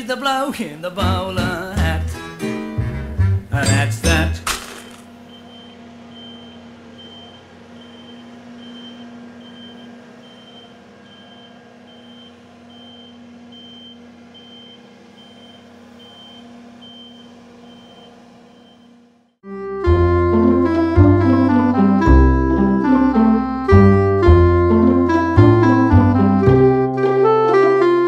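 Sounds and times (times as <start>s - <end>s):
engine running: 4.2s - 28.0s
vehicle reversing alarm beeping: 5.2s - 19.0s.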